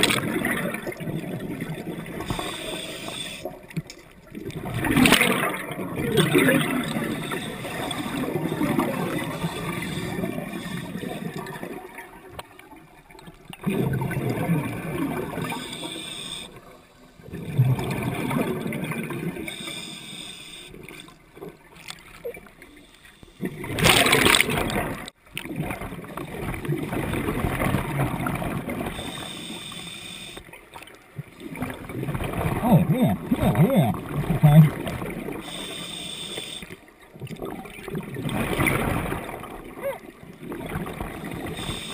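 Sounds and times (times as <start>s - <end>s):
regulator hiss: 2.4s - 3.5s, 15.6s - 16.5s, 19.5s - 20.8s, 29.0s - 30.4s, 35.4s - 36.7s
diver exhaling bubbles: 4.4s - 11.8s, 13.6s - 16.5s.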